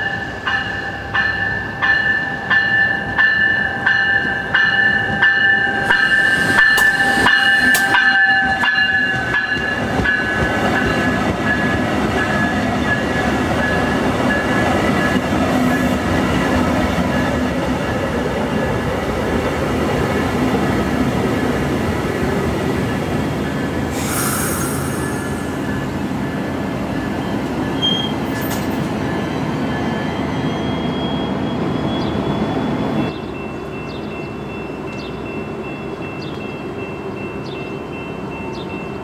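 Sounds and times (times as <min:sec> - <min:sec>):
high wheel-singing tone: 0:00.0 - 0:18.8, 0:22.2 - 0:39.0
train coaches rumbling past: 0:00.0 - 0:39.0
burst of hiss: 0:23.9 - 0:25.7.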